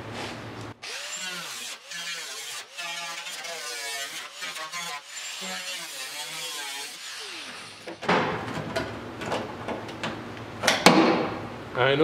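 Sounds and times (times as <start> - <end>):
angle grinder cutting steel: 0.8 - 7.9.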